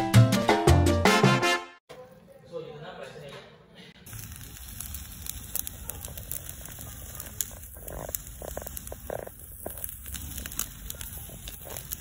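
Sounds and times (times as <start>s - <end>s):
meat crackling on charcoal grill: 4.1s - 12.0s.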